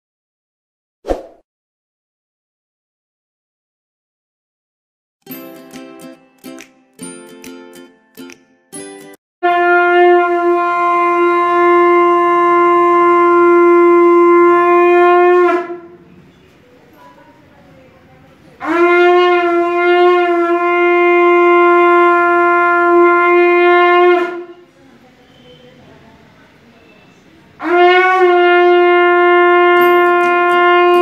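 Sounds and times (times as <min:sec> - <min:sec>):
conch shell blasts: 0:09.4 - 0:16.0, 0:18.6 - 0:24.6, 0:27.6 - 0:31.0.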